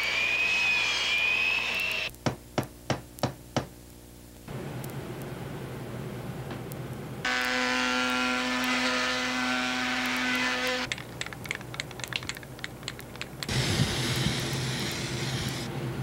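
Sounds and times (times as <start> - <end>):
electric sander running: 7.3 - 10.9
sharp clicks: 10.8 - 15.6.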